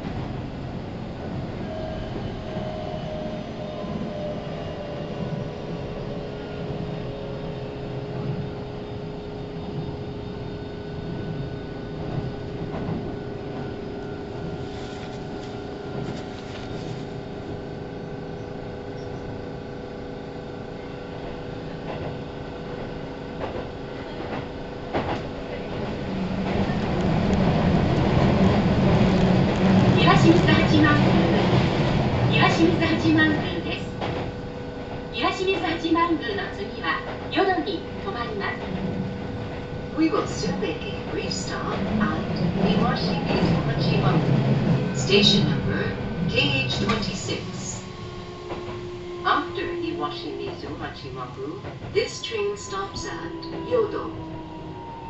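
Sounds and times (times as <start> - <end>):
train wheels rumbling on rails: 0.0 - 19.4, 21.1 - 55.0
rail clicks: 21.8 - 55.0.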